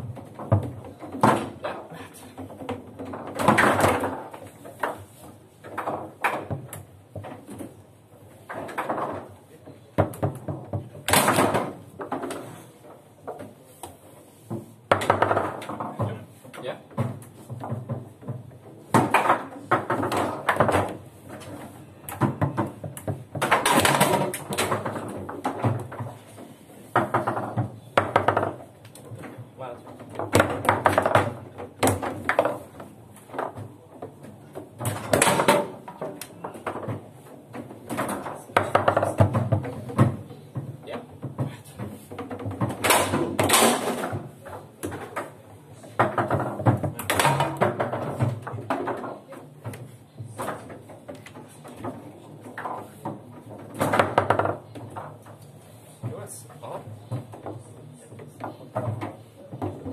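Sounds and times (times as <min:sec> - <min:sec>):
table football ball clacks: 0:30.1 - 0:55.6.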